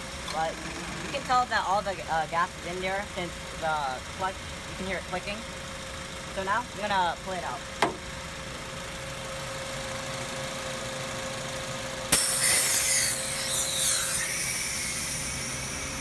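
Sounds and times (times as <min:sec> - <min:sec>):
car engine idling: 0:00.0 - 0:12.2
refrigerant hissing: 0:12.1 - 0:16.0.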